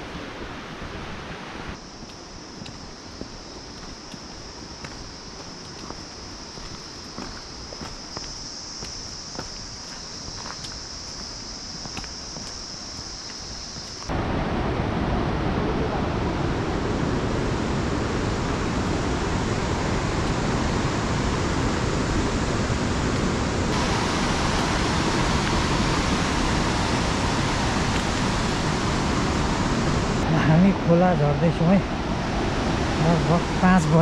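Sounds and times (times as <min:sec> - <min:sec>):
white-water river roaring: 0:14.1 - 0:34.0.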